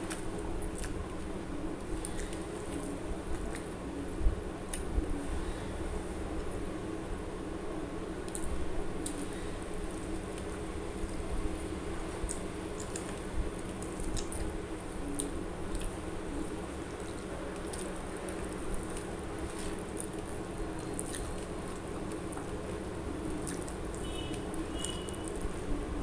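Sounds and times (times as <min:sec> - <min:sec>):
steady low hum: 0:00.0 - 0:26.0
fingers squishing rice: 0:08.2 - 0:26.0.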